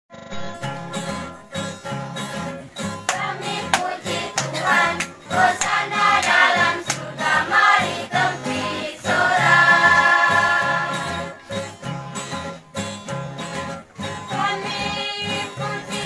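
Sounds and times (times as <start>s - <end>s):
strummed acoustic guitars: 0.1s - 16.0s
church choir singing: 3.1s - 11.8s, 14.3s - 16.0s.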